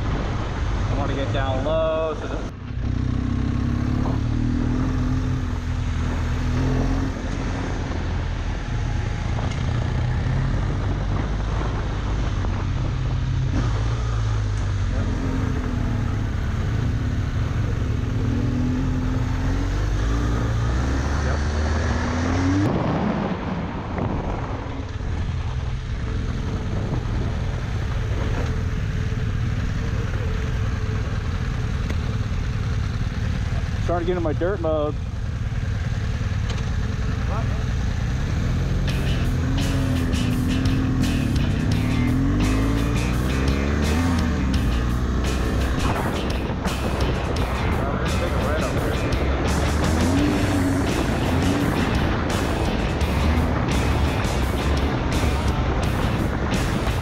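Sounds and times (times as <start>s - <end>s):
wind noise: 0.0s - 2.6s, 5.4s - 16.4s, 17.4s - 29.7s, 43.0s - 57.0s
motorcycle engine running: 0.0s - 22.5s, 24.4s - 57.0s.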